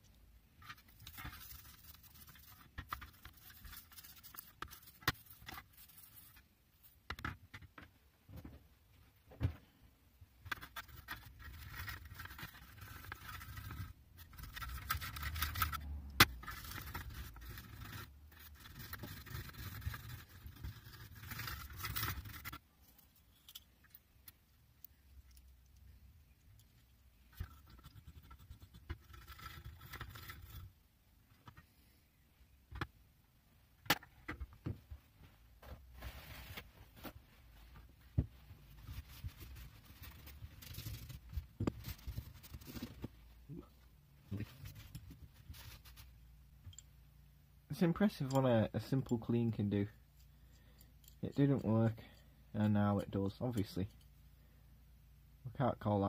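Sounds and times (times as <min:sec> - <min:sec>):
wire wool scrubbing metal: 0:10.5 - 0:22.6.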